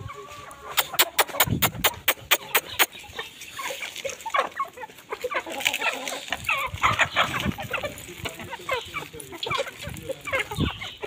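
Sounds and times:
chickens clucking: 0:00.0 - 0:11.0
sharp clicks: 0:00.8 - 0:02.9.

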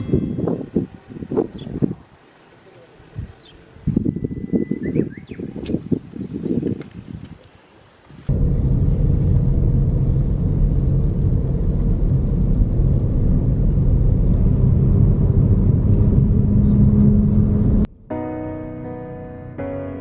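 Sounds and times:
car tyres and engine rumble: 0:04.7 - 0:17.9.

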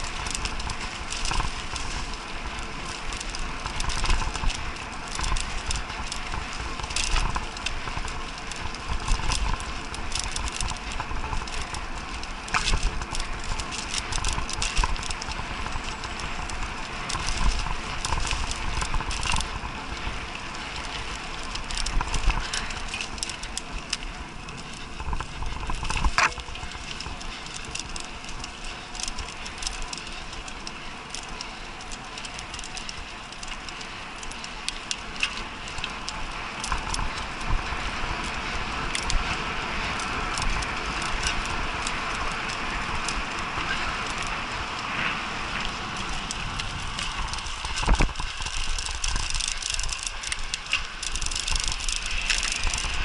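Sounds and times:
bike frame and chain rattling: 0:00.0 - 0:53.0
bike tyre rumble on dirt: 0:00.0 - 0:53.0.

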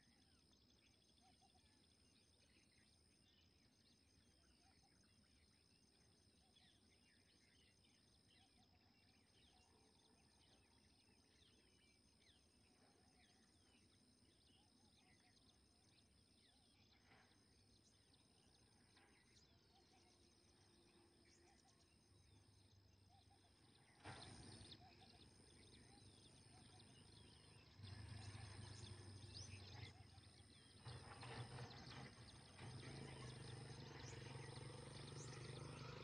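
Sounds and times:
faint bird chirps: 0:00.0 - 0:36.0.

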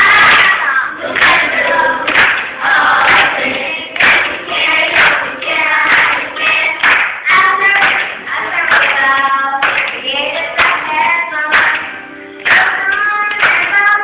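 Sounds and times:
choir singing: 0:00.0 - 0:09.3
hand claps on the beat: 0:00.0 - 0:14.0.

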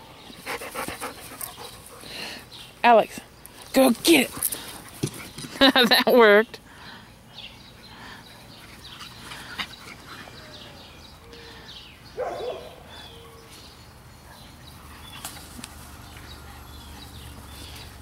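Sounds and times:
birds chirping: 0:00.0 - 0:18.0
dog barking: 0:12.2 - 0:12.8.

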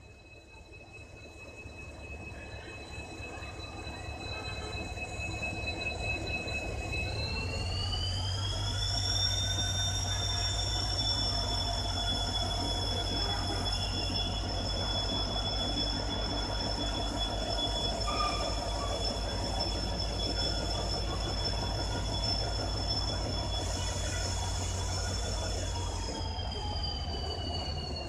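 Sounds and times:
diesel locomotive engine rumble: 0:00.0 - 0:28.0
high whine: 0:06.2 - 0:28.0.

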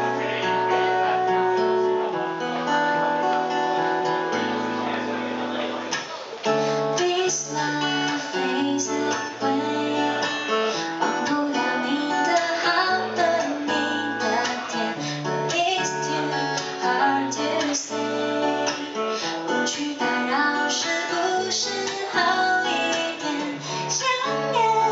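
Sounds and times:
acoustic guitar strumming: 0:00.0 - 0:24.9
woman singing: 0:06.8 - 0:24.9.

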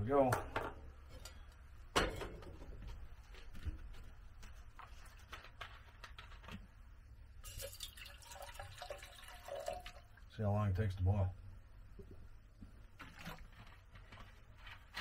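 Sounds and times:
water pouring from plastic bottle: 0:07.5 - 0:10.1.

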